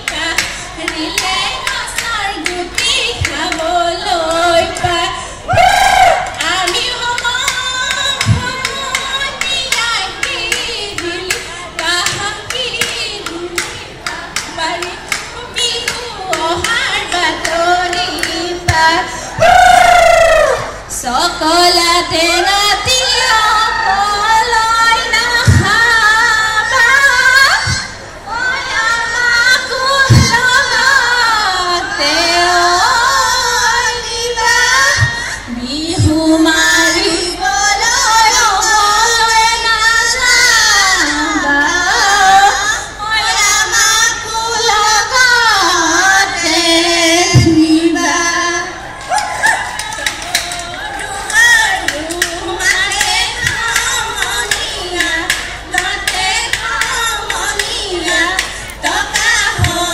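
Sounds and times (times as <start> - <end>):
women singing long wavering notes: 0.0 - 59.9
low drum beats: 8.1 - 8.8.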